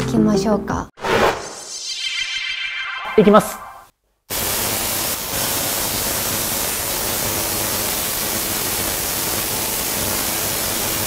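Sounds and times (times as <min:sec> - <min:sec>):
tesla coil sparking hiss: 0:04.3 - 0:11.0.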